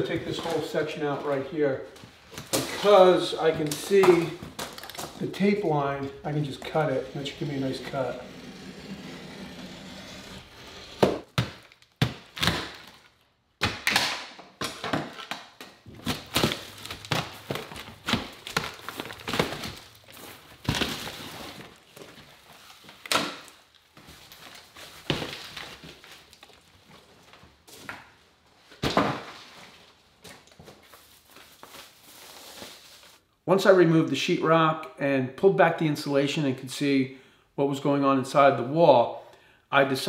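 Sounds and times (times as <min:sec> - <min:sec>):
drywall cracking and breaking: 0:02.4 - 0:05.5, 0:10.3 - 0:27.4, 0:28.8 - 0:29.5.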